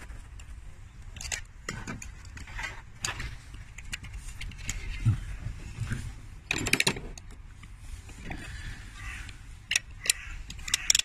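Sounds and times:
metal tools clicking and rattling: 1.1 - 5.0.

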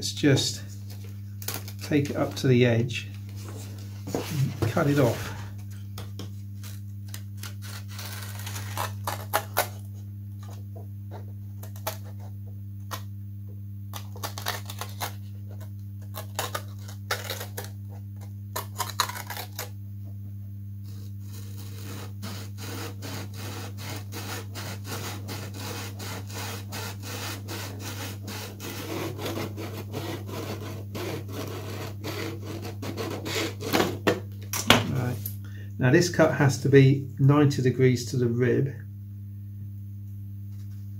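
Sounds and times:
low electrical hum: 0.0 - 40.9
hand saw cutting wood: 20.9 - 34.0.

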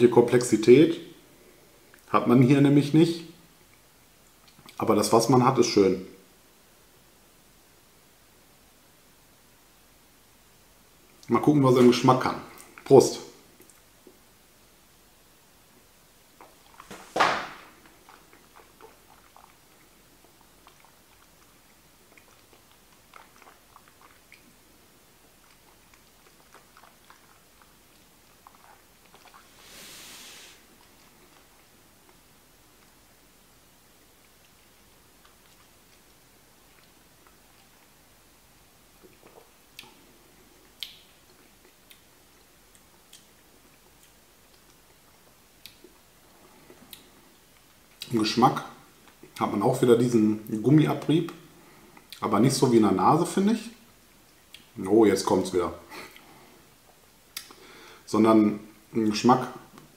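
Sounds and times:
wet mouth clicks and smacking: 3.7 - 4.8, 17.8 - 24.6, 39.0 - 40.0, 40.6 - 46.0, 54.3 - 54.8, 56.9 - 57.6
breathy exhale: 29.6 - 30.6, 57.5 - 58.1.

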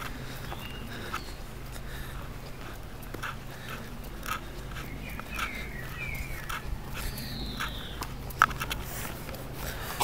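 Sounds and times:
footsteps on asphalt: 0.0 - 10.0
bird chirps: 0.3 - 1.6, 4.7 - 8.2.

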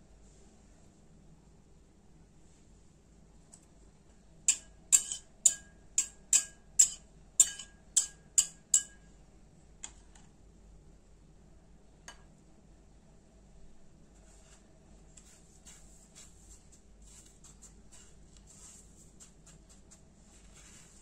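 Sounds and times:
spoon tapping glass bowl: 4.5 - 9.1.

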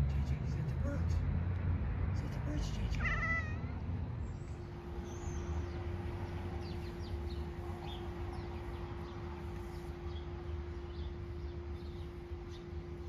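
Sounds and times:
cat meowing: 3.0 - 3.8.

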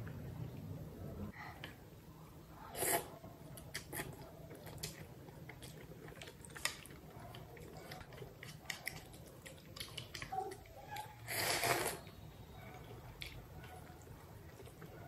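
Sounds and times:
soft chewing: 1.3 - 15.0
slurp of noodles: 2.7 - 3.2, 11.2 - 12.1.

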